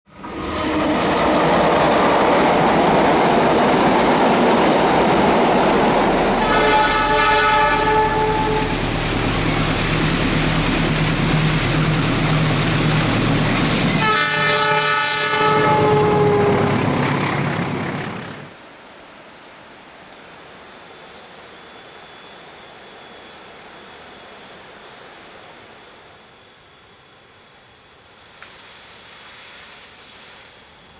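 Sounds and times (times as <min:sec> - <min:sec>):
diesel train rumble: 0:00.1 - 0:18.6
train horn blasts: 0:06.3 - 0:09.3, 0:13.8 - 0:16.9.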